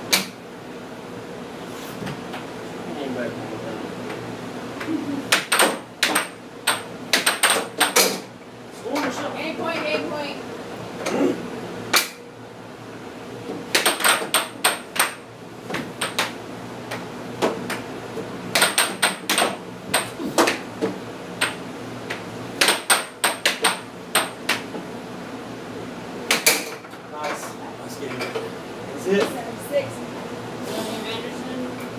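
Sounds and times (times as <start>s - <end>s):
air hockey puck clacking: 5.3s - 8.3s, 13.7s - 17.8s, 18.5s - 24.8s, 26.3s - 27.4s.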